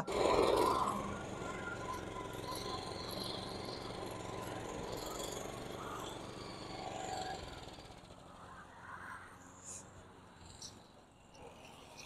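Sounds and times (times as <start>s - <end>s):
lawn mower engine cutting grass: 0.0s - 8.3s.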